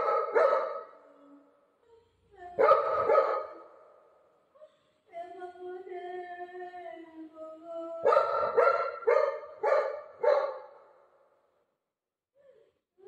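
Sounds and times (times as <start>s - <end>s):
dog barking: 0.0s - 1.0s, 2.6s - 3.9s, 8.0s - 10.9s.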